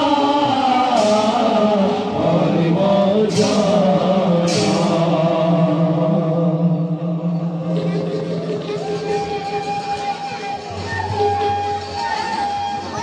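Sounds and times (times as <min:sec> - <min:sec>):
person singing: 0:00.0 - 0:10.3.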